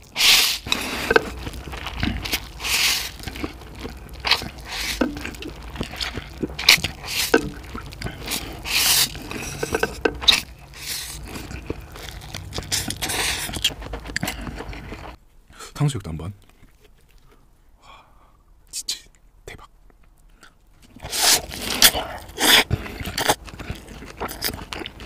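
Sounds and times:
noodle slurping: 0.0 - 15.2, 20.9 - 25.0
wet chewing and smacking: 0.0 - 15.2, 19.9 - 25.0.

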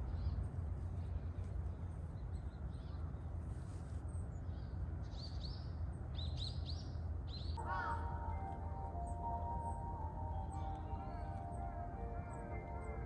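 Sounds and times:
low outdoor rumble: 7.0 - 13.0
birds chirping: 7.4 - 13.0.

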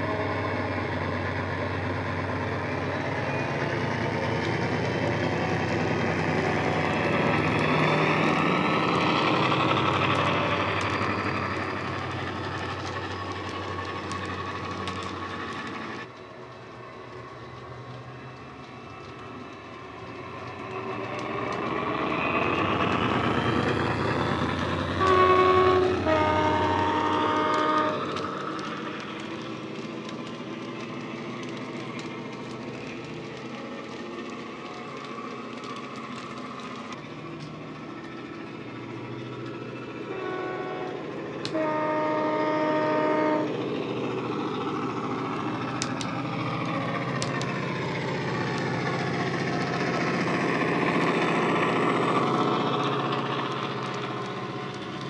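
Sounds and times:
two-tone locomotive horn: 5.3 - 8.2, 24.7 - 28.6, 40.0 - 43.7.

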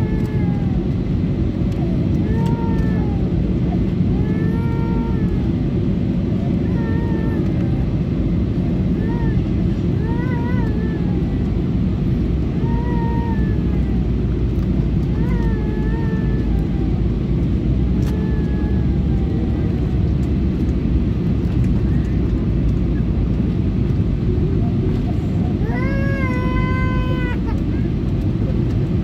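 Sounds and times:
airliner cabin engine drone: 0.0 - 29.0
faint passenger voices: 6.3 - 29.0.

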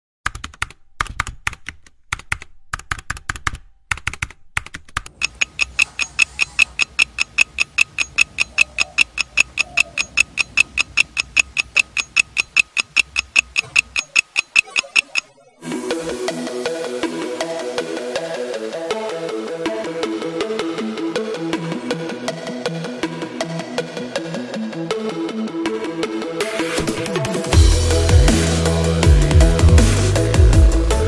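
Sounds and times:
keyboard typing: 0.2 - 15.4
fast ringing ticking: 5.1 - 15.4.

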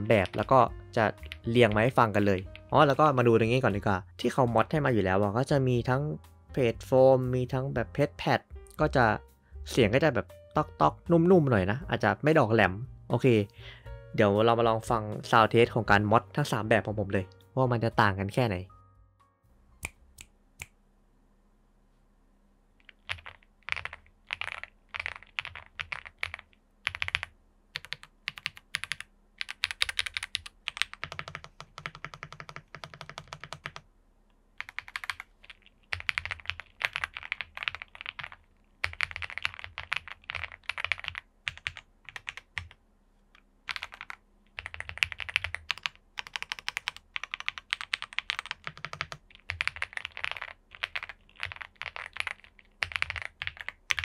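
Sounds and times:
mechanical keyboard typing: 0.1 - 3.0, 22.8 - 33.8, 34.6 - 42.8, 43.7 - 54.0.

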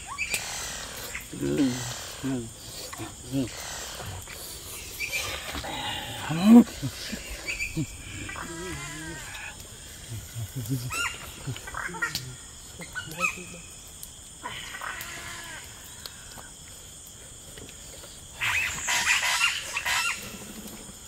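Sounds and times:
person grunting and crying out: 5.6 - 9.4.

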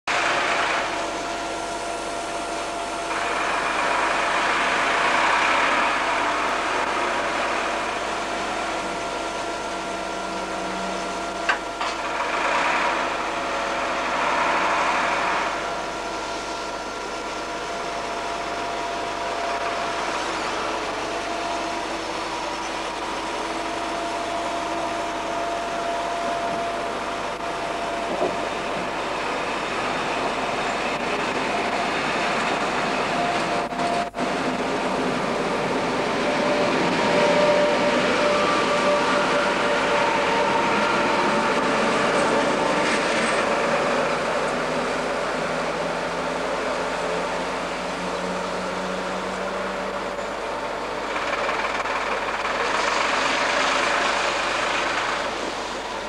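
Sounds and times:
electric train whine: 0.1 - 56.0
train coaches rushing past: 0.1 - 56.0.

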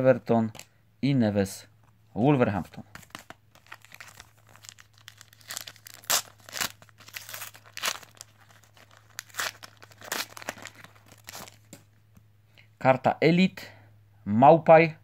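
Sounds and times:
plastic wrapper tearing and crinkling: 3.0 - 11.8.

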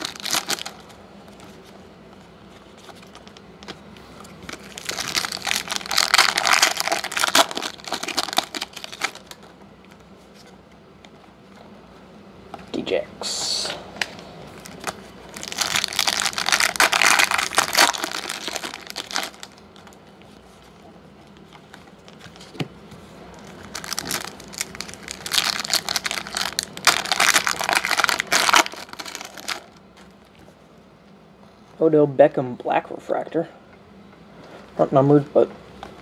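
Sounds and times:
foil wrapper crinkling and tearing: 0.0 - 1.0, 4.4 - 9.5, 14.6 - 20.0, 23.4 - 30.3.

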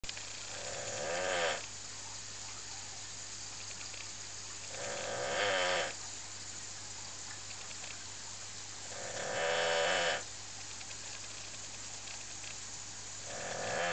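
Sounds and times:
dog snoring: 0.4 - 1.7, 4.7 - 6.0, 8.8 - 10.3, 13.2 - 13.9.

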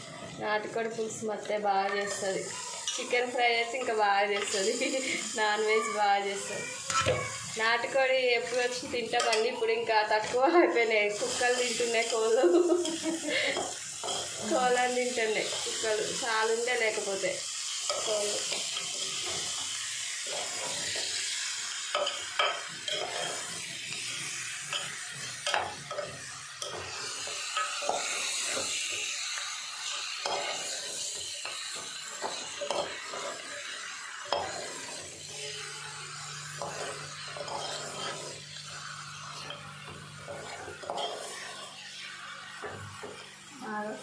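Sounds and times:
meat sizzling: 0.0 - 44.0
ladle scraping metal pot: 36.6 - 39.6, 40.2 - 41.7.

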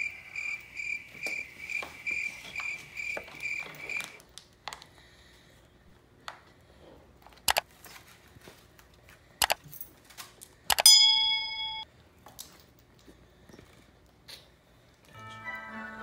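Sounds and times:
bright metallic ding: 10.8 - 11.9.

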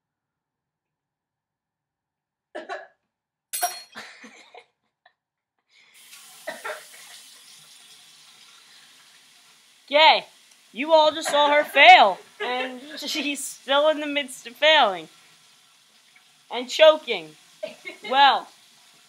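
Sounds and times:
person coughing: 2.6 - 3.0, 3.8 - 4.6, 6.5 - 6.9
kitchen tap running: 6.0 - 19.0.

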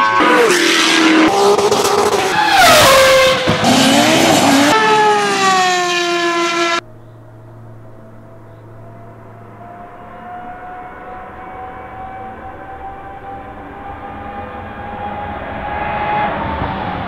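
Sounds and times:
racing car engines revving and passing: 0.0 - 17.0
faint distant engine drone: 6.8 - 14.7.

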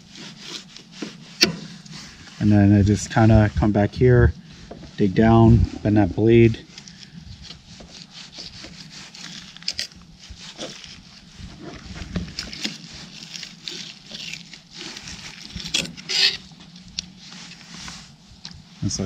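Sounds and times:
knife scraping fish on board: 6.9 - 16.5.

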